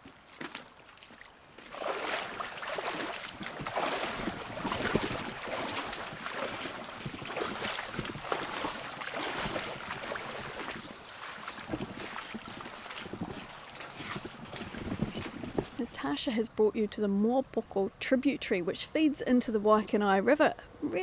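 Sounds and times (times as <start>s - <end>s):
stream water splashing and rushing: 0.0s - 16.4s.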